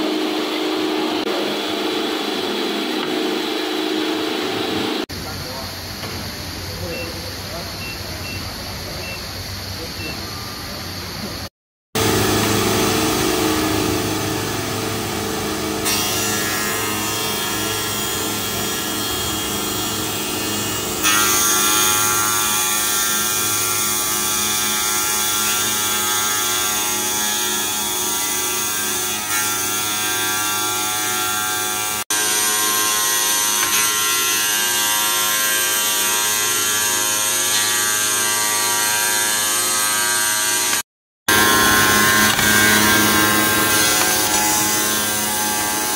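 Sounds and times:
wet tile cutting machine whine: 9.8 - 45.9.

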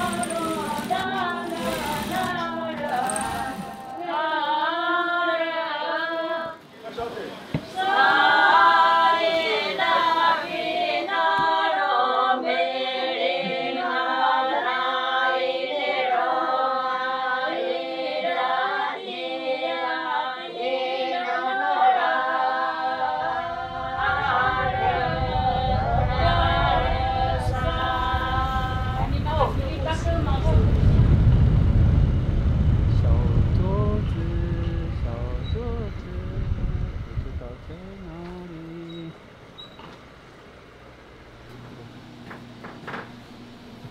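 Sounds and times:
group singing unaccompanied: 0.0 - 6.8, 7.4 - 30.1
low rumble: 23.1 - 39.5.

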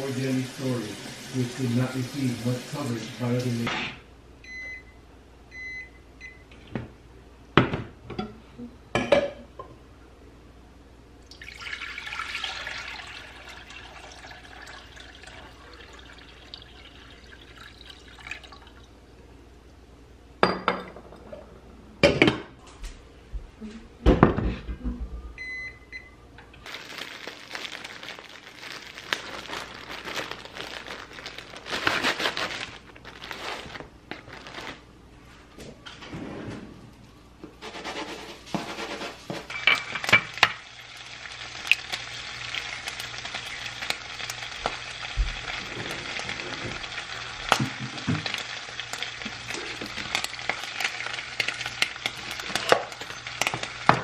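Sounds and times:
cooktop beeps: 4.4 - 6.5, 25.4 - 26.6
water pouring into pot: 11.3 - 19.0
plastic bag rustling: 26.7 - 34.9.

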